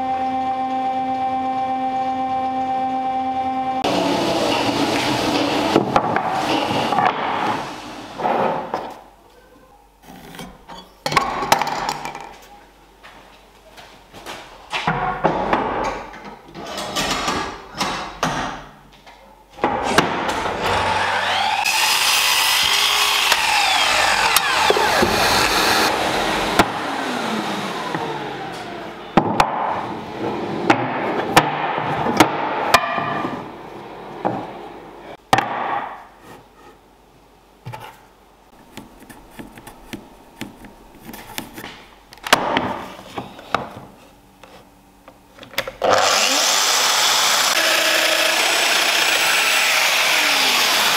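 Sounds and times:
table saw cutting wood: 0:00.0 - 0:08.4, 0:20.3 - 0:31.5, 0:45.8 - 0:50.9.

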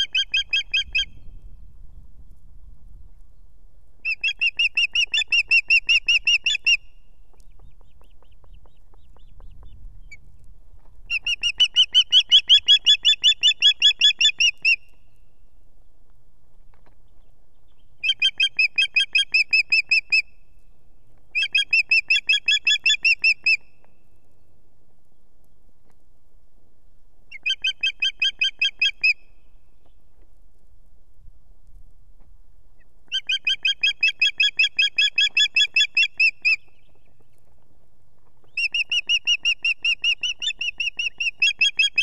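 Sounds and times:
osprey whistled calls: 0:00.0 - 0:01.2, 0:04.0 - 0:07.0, 0:11.1 - 0:14.9, 0:18.0 - 0:20.3, 0:21.4 - 0:23.6, 0:27.3 - 0:29.3, 0:33.1 - 0:36.9, 0:38.5 - 0:42.0.

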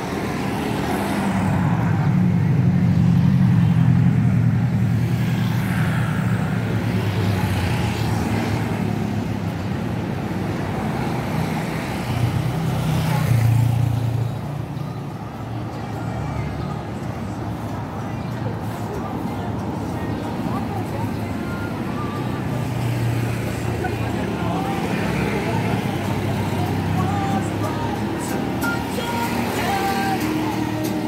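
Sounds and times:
passing car and motorcycle engines: 0:00.0 - 0:31.0.

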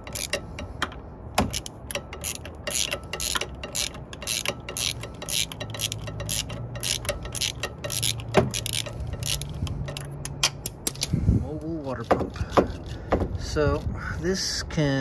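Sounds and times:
ratchet wrench clicking: 0:00.0 - 0:11.1.

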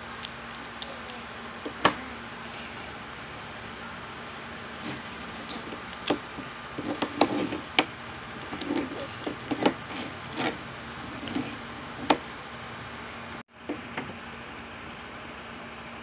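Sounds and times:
steady background hiss: 0:00.0 - 0:16.0.

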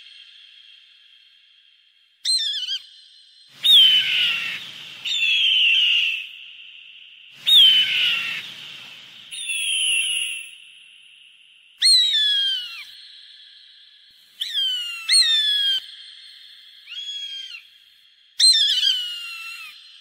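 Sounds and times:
hawk screaming: 0:03.6 - 0:06.1, 0:07.5 - 0:09.0.

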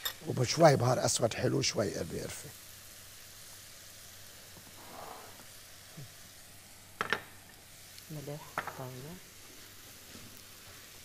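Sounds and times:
filling sizzling in a frying pan: 0:00.0 - 0:11.0
wooden spoon knocking on pan: 0:07.0 - 0:07.3, 0:08.6 - 0:08.8.

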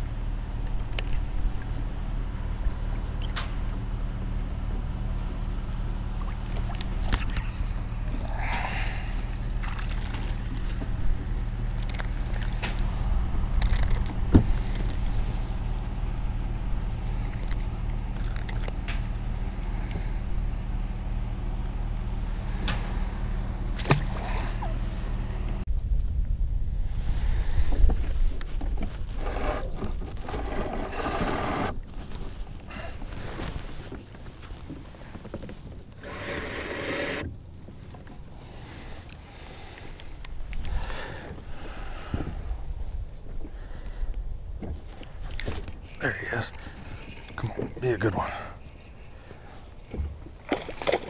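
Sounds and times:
electric boat motor humming: 0:00.2 - 0:25.6, 0:35.9 - 0:37.5
rustling of fishing rod: 0:06.5 - 0:15.9, 0:27.6 - 0:43.6, 0:44.6 - 0:51.0.

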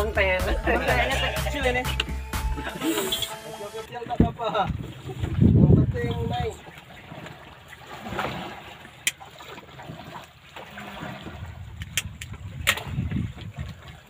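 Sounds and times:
water sloshing against boat: 0:00.0 - 0:14.0.

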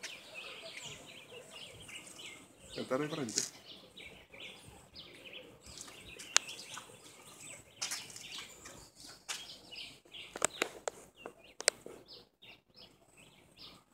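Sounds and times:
birds chirping: 0:00.0 - 0:13.9
sharp clicks: 0:10.3 - 0:11.8.

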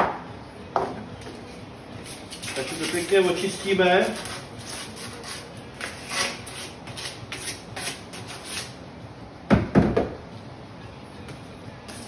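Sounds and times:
sandpaper rubbing plastic pipe: 0:02.0 - 0:08.7.

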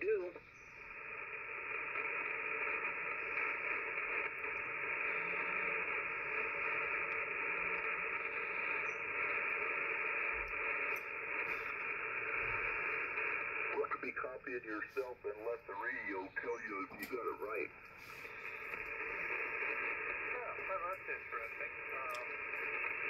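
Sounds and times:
radio receiver hiss: 0:00.0 - 0:23.0.

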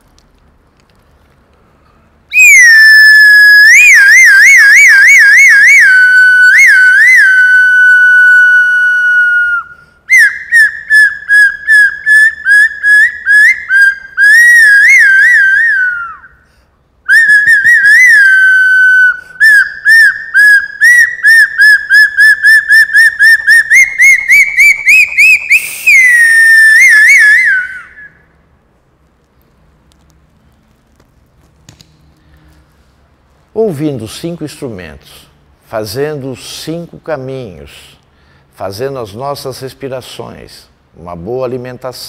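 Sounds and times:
handheld whistle trilling: 0:02.3 - 0:16.5, 0:17.1 - 0:28.5.

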